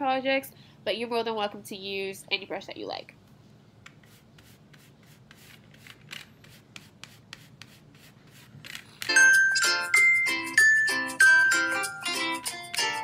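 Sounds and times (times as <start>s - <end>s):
paintbrush scrubbing and scratching: 4.0s - 9.0s
bright melodic music: 9.1s - 13.0s.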